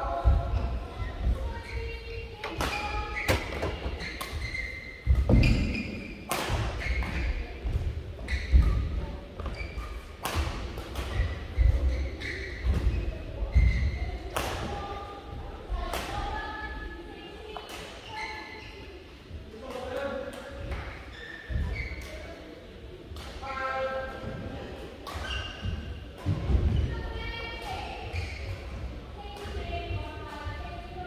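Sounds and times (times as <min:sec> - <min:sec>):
racket hitting shuttlecock: 0:02.4 - 0:07.8, 0:09.8 - 0:13.0.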